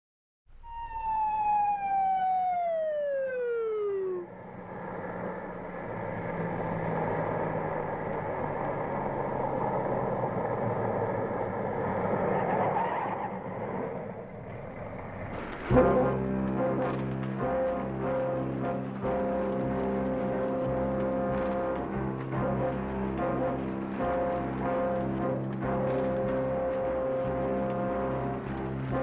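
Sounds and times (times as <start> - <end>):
siren winding down: 0.5 - 4.7.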